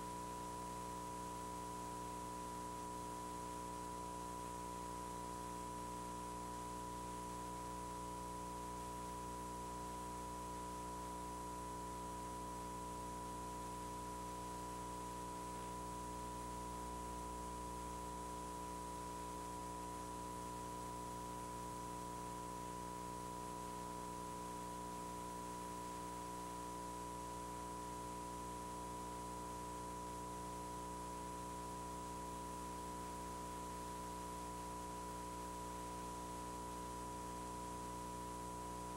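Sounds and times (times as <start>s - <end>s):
low electrical hum: 0.0s - 38.9s.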